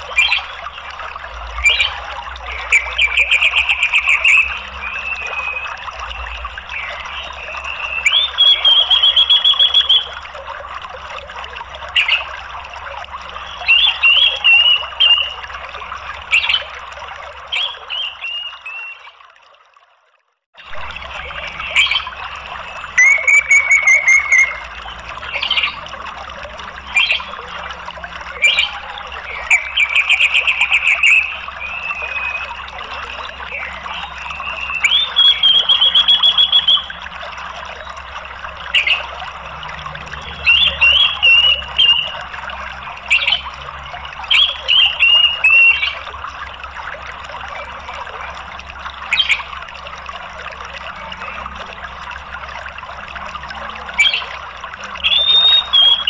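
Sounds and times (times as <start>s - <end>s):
flowing water: 0.0s - 56.0s
bird trilled chattering calls: 7.7s - 10.1s, 23.0s - 24.6s, 33.6s - 36.9s.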